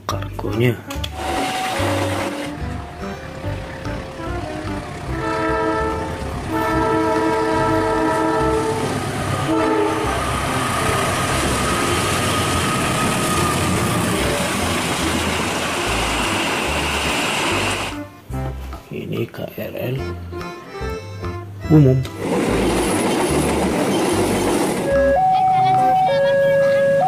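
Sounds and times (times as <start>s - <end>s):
locomotive horn blasts: 1.0s - 2.6s, 4.2s - 10.4s
train wheels rushing on rails: 1.0s - 18.0s, 22.1s - 25.1s.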